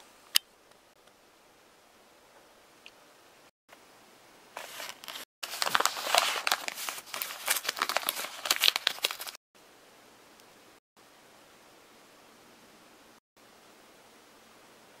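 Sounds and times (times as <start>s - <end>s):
paper envelope tearing: 4.6s - 9.4s.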